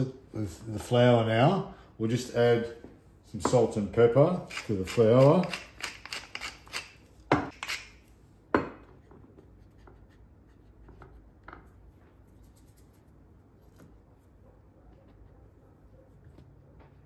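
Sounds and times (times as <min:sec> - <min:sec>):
pepper mill grinding: 0:04.4 - 0:08.0
hands rubbing and patting flour: 0:09.3 - 0:17.0.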